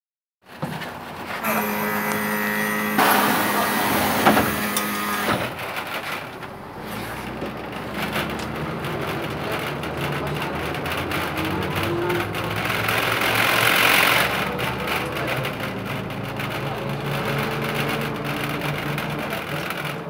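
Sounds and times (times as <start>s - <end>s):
bus doors closing thud: 1.6s - 5.8s
diesel bus engine running: 1.6s - 20.0s.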